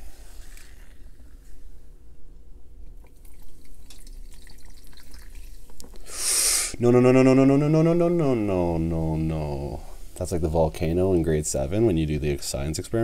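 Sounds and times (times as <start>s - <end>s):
soda fizzing: 3.0s - 6.7s
short loud hiss: 6.0s - 6.8s.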